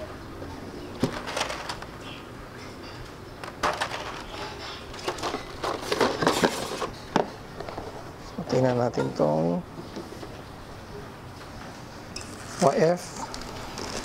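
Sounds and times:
plastic tray crinkling and clicking: 1.0s - 1.9s, 3.4s - 7.8s.

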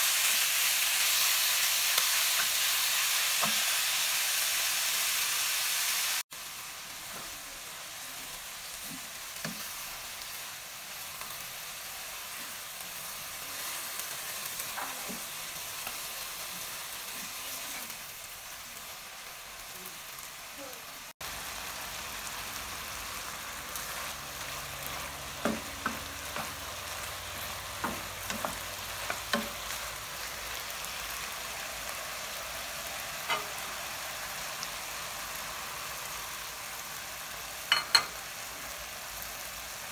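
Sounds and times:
chicken sizzling in oil: 0.0s - 39.9s
spatula knocking on pan: 25.4s - 26.6s, 27.8s - 29.6s.

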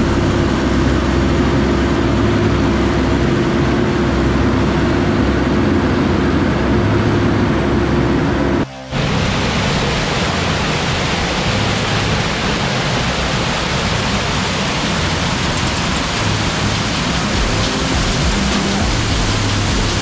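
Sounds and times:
floodwater cascading down stone steps: 9.0s - 20.0s.

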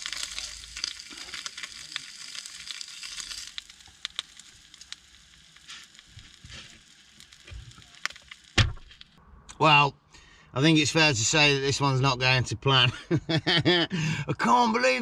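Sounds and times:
bacon sizzling in a pan: 0.0s - 8.6s
fat popping: 0.0s - 9.6s.

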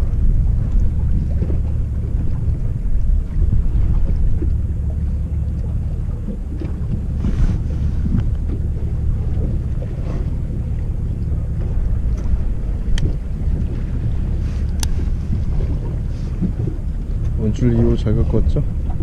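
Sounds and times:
boat engine rumbling: 0.0s - 19.0s
wind buffeting microphone: 0.0s - 19.0s
faint ticks: 14.6s - 15.0s.

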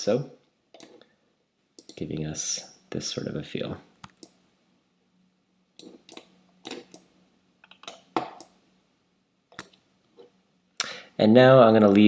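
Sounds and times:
computer mouse clicking: 0.8s - 1.0s, 1.8s - 2.0s, 5.8s - 8.6s.

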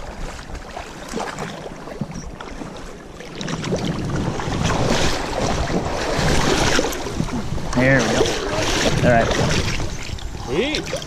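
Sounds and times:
river water splashing around legs: 0.0s - 11.0s
wind buffeting microphone: 3.4s - 11.0s.

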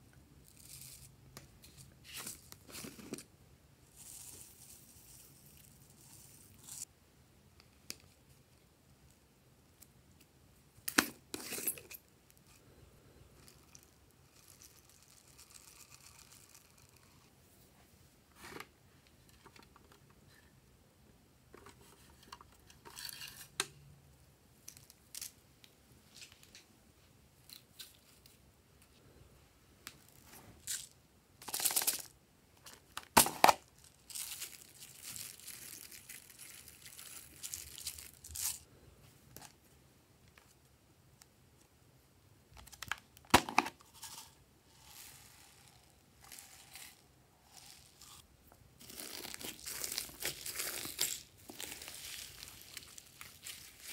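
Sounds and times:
foam beads pouring rustle: 44.7s - 48.2s, 48.8s - 53.9s.

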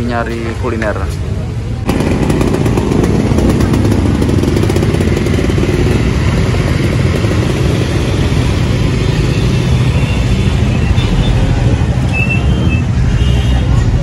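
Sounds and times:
dense street traffic: 0.0s - 14.0s
small motorbike engines running: 1.8s - 14.0s.

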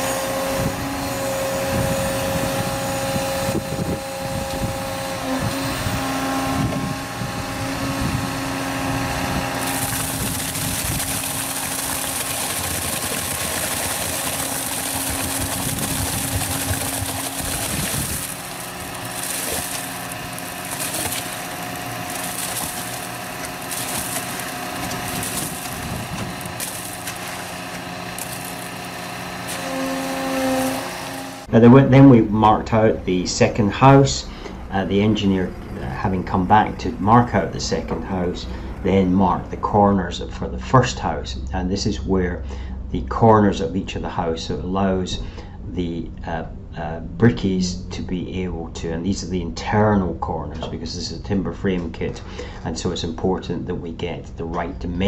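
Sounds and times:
concrete vibrator humming: 0.0s - 39.6s.

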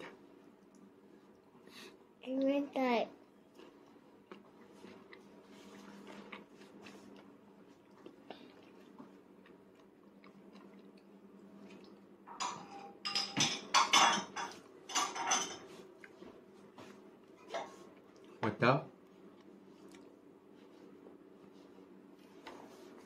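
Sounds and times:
clattering against a plate: 12.3s - 15.7s.

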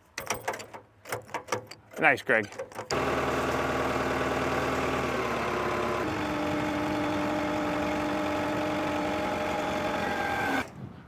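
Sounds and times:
machine engine running: 2.9s - 10.7s.

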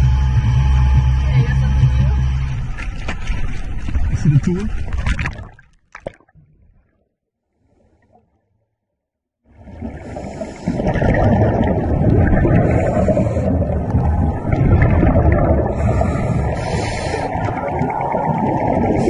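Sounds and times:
muffled underwater rumble: 0.0s - 5.6s, 9.5s - 19.0s.

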